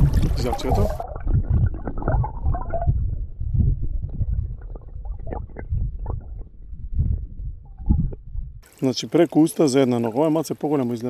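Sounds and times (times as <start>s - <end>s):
muffled underwater rumbling: 0.0s - 8.7s.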